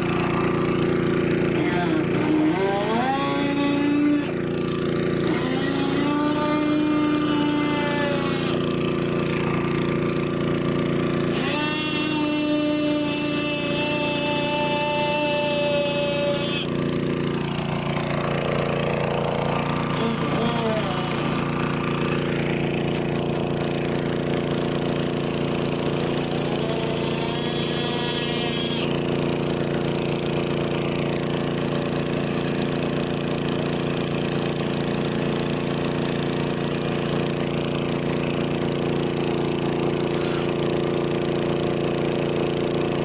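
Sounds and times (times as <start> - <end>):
pneumatic air knife hissing: 5.4 - 8.7, 11.3 - 16.8, 26.0 - 29.2, 40.1 - 40.6.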